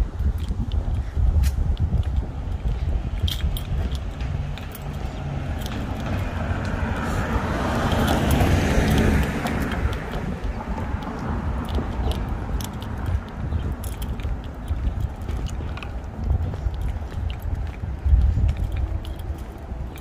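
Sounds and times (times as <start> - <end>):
steady low rumble: 0.0 - 20.0
car passing by: 4.1 - 13.0.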